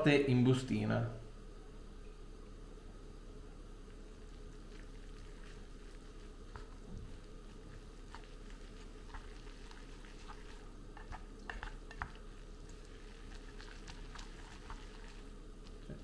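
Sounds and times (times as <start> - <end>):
chopsticks stirring noodles: 3.8 - 16.0.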